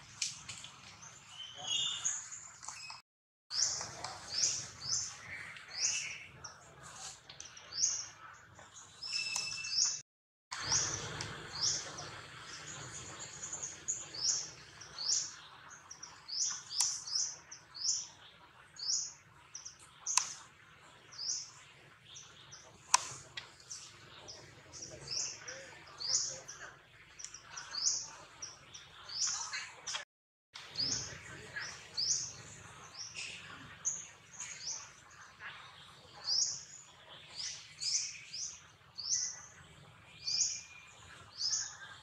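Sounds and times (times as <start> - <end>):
soft outdoor background noise: 0.0 - 10.0, 10.6 - 30.0, 30.6 - 42.0
bird chirping high: 9.0 - 10.0.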